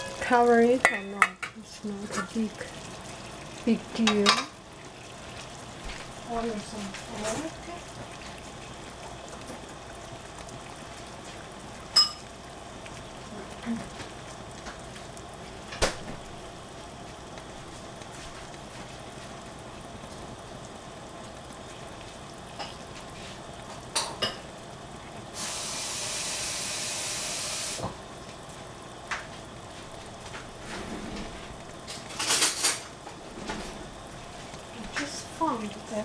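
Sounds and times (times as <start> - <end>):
cookware clinking: 0.0 - 2.4, 4.0 - 4.6, 12.0 - 12.3
pots cooking on gas stove: 0.0 - 36.0
spraying hiss: 25.4 - 27.9.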